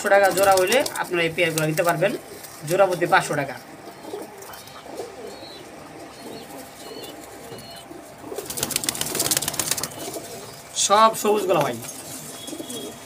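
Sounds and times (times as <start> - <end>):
pigeons cooing: 0.0 - 13.0
wings flapping: 0.2 - 2.6, 8.2 - 10.4.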